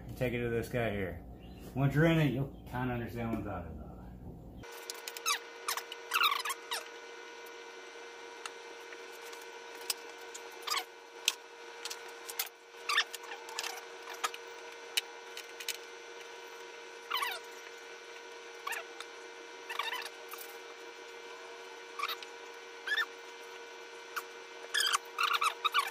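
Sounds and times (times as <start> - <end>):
faint hum: 0.0 - 25.9
squeaky rubber rubs: 5.2 - 6.9, 19.7 - 20.5, 22.0 - 23.2, 24.2 - 25.9.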